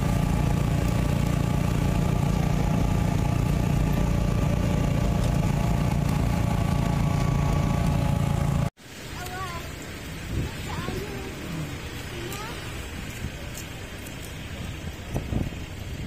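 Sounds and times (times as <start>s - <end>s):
vehicle engine droning with whine: 0.0s - 8.7s.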